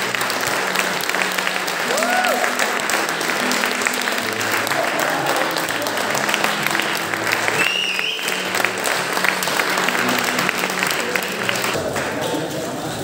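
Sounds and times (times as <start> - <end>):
audience clapping: 0.0 - 13.0
music: 0.0 - 13.0
short high whistle: 7.6 - 8.4.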